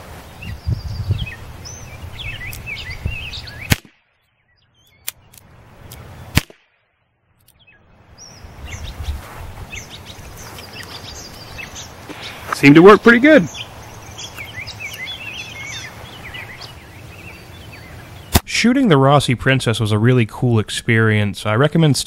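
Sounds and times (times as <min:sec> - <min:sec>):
revolver pops: 0:03.7 - 0:04.0, 0:06.3 - 0:06.7.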